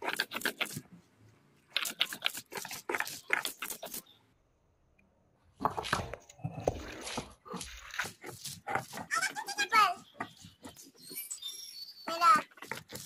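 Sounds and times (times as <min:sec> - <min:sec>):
stone roller grinding on stone: 0:00.0 - 0:00.9, 0:06.4 - 0:13.0.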